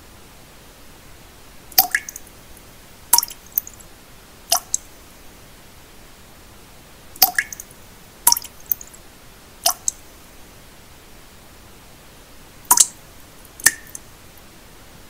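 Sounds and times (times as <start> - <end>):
soft steady hiss: 0.0 - 15.0
water drops dripping into water: 1.7 - 2.3, 3.1 - 3.8, 4.5 - 4.9, 7.2 - 7.7, 8.3 - 8.9, 9.6 - 10.0, 12.7 - 13.0, 13.6 - 14.1.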